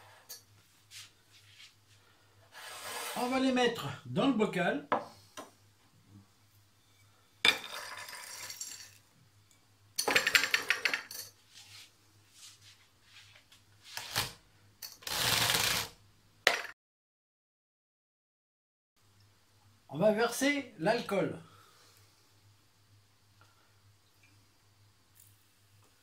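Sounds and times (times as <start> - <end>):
nuts rattling into glass jar: 7.5 - 9.0.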